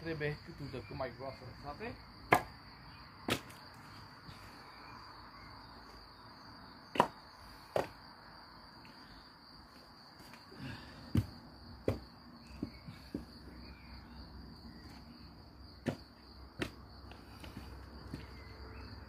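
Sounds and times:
firewood logs knocking together: 2.3 - 2.5, 3.3 - 4.4, 6.9 - 8.0, 10.8 - 13.3, 15.8 - 16.8.

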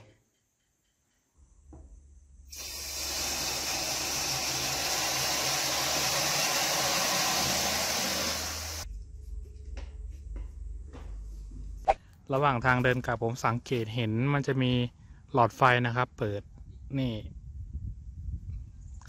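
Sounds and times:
shower water spraying: 2.5 - 8.9
low hum: 8.6 - 12.0.

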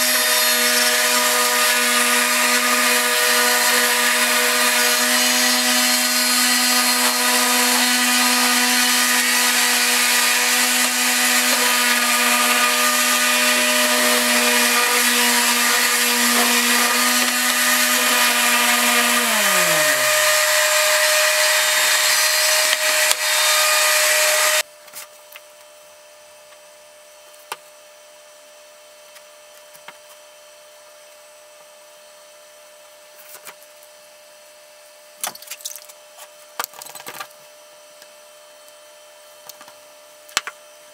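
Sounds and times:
sander motor whine: 0.0 - 24.6.

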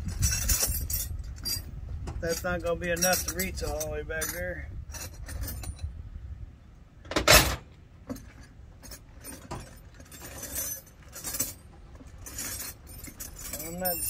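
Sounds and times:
metal hand tools clinking: 0.1 - 5.8, 8.8 - 14.0.

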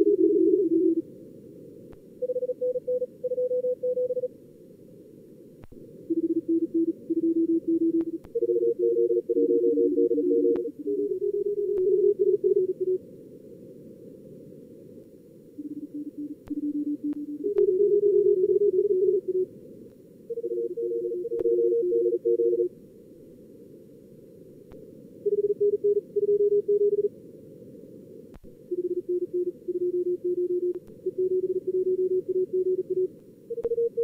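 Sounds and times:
morse code beeps: 6.1 - 13.0, 15.6 - 19.5, 20.3 - 22.7, 28.7 - 34.0
faint clicks: 30.7 - 31.0.

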